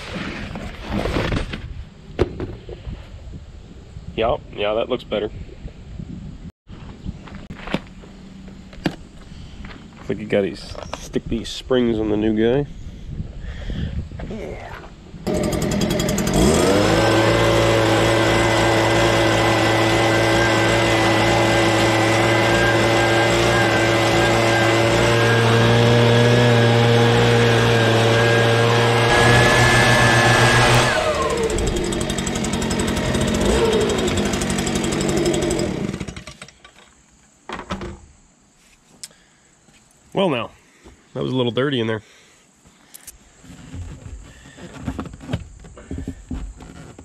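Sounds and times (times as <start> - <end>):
leaf blower running: 15.3 - 36.5.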